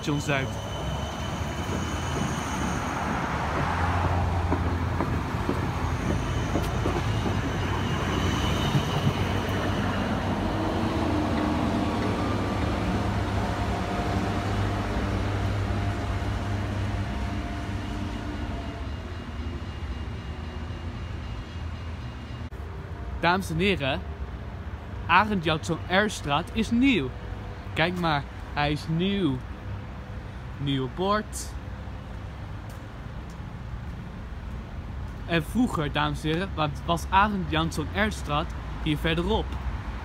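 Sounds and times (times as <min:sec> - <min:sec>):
tram wheels rumbling on rail: 0:00.0 - 0:23.3.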